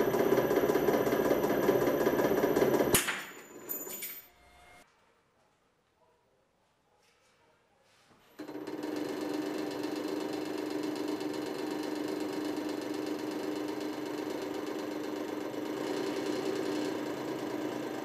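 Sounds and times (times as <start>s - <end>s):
hydraulic pump motor humming: 8.4s - 18.0s.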